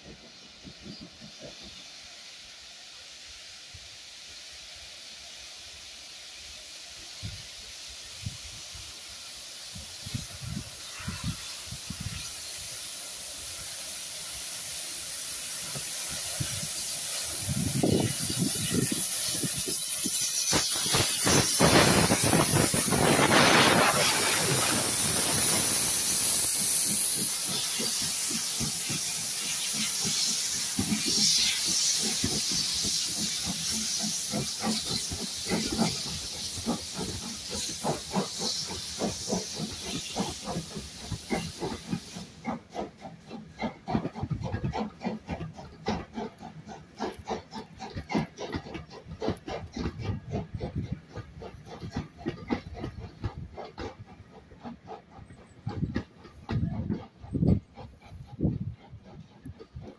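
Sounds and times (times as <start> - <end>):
steam locomotive hissing: 0.0 - 59.9
coaches rumbling on rails: 15.3 - 59.9.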